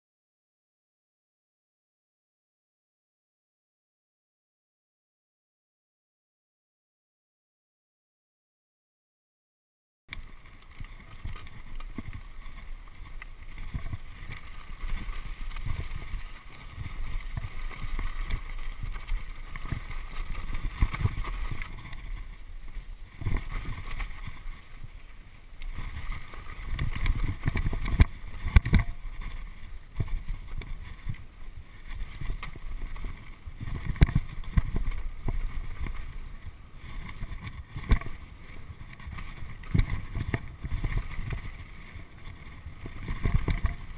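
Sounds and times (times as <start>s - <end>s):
bike rattling: 10.1s - 43.9s
wind rushing over microphone: 10.1s - 43.9s.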